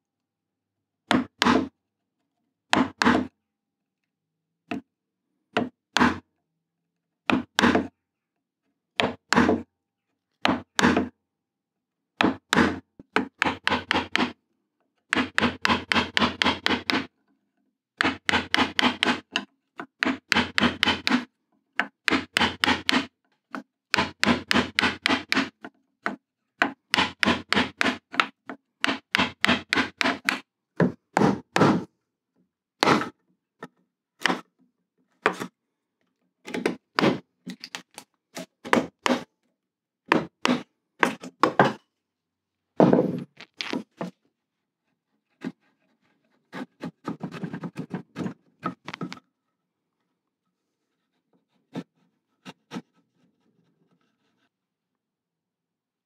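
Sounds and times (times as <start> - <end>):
wood chisel knocking: 12.2 - 14.3, 15.1 - 17.1, 18.0 - 21.2, 21.8 - 31.9, 40.1 - 41.8.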